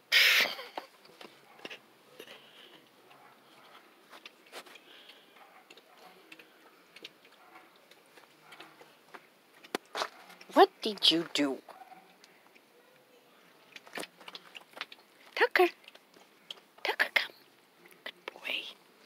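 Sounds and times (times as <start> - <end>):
faint clicks and taps: 0.8 - 10.5, 11.7 - 16.8.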